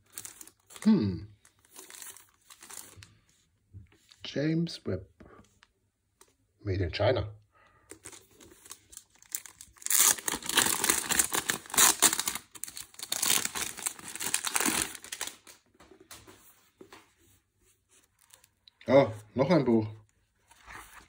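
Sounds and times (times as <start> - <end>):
plastic wrapping crinkling and tearing: 0.0 - 3.1, 7.9 - 15.7
faint handling sounds: 14.6 - 21.0.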